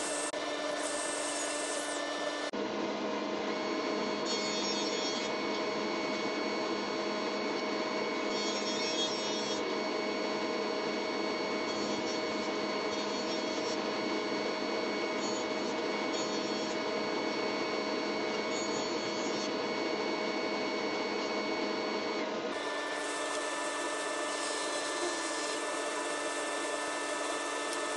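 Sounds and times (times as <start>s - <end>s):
cutterhead cutting wood: 0.0s - 2.5s, 22.5s - 27.9s
jointer hum: 18.2s - 27.9s.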